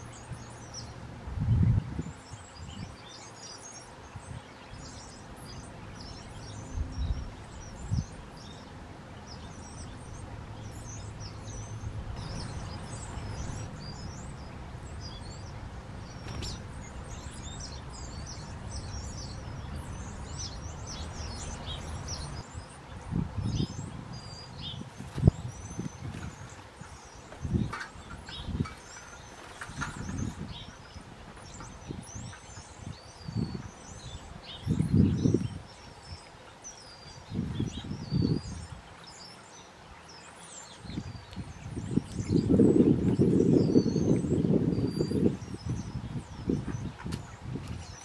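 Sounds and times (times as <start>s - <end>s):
songbirds chirping: 0.0s - 48.0s
steady low rumble: 4.2s - 35.5s
low thumps: 9.8s - 19.6s.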